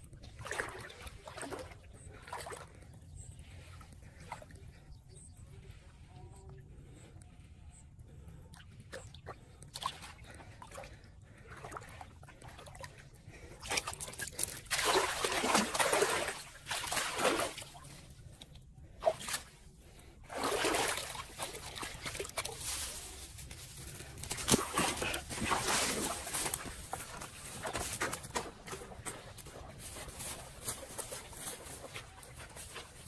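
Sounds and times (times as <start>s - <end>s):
muddy water rushing and splashing: 9.7s - 18.2s, 20.2s - 33.0s.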